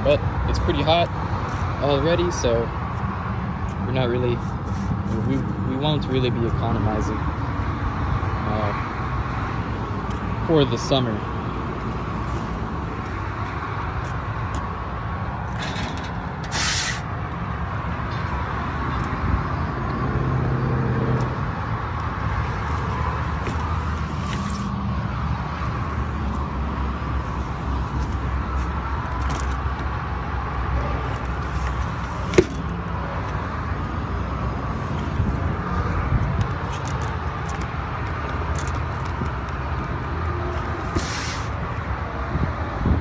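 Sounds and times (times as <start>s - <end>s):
brief scrape: 16.4s - 17.1s, 40.9s - 41.6s.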